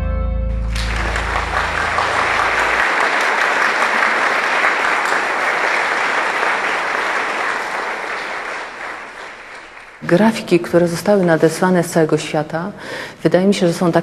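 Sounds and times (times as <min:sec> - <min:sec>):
low music tone: 0:00.0 - 0:02.8
audience applauding: 0:00.7 - 0:10.4.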